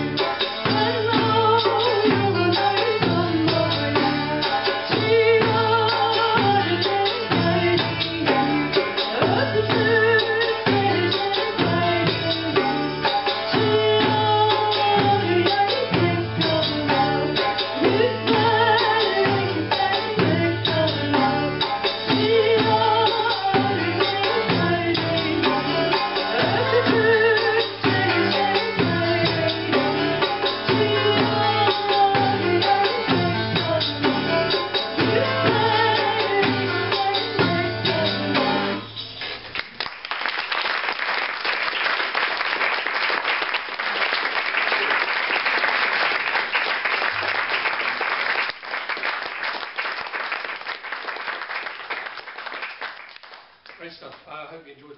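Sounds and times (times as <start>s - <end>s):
woman singing: 0.0s - 39.0s
bass guitar: 0.0s - 39.6s
darbuka drumming: 0.0s - 53.6s
audience applauding: 39.2s - 54.3s.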